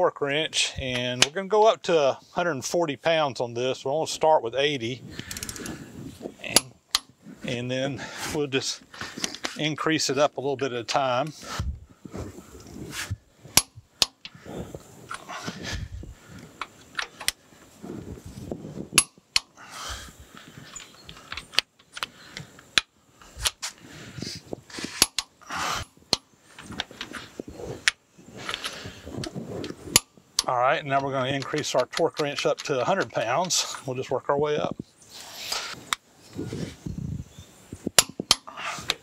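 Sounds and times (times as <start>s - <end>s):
torque wrench clicking: 5.2s - 5.7s
wrench ratcheting: 5.2s - 5.7s
metal handling: 5.2s - 7.2s, 20.3s - 23.8s, 24.6s - 33.9s
sharp metallic click: 24.8s - 25.3s, 38.0s - 39.0s.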